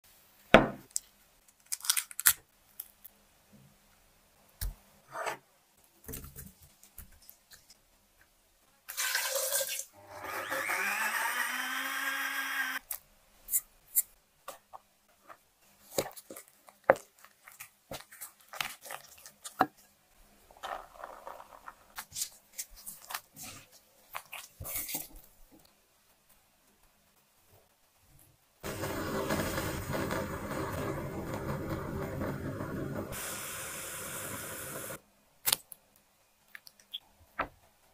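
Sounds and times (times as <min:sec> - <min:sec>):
dough kneaded by hand: 0:14.5 - 0:27.9, 0:28.6 - 0:33.2
wooden spatula scraping bowl: 0:28.6 - 0:33.2.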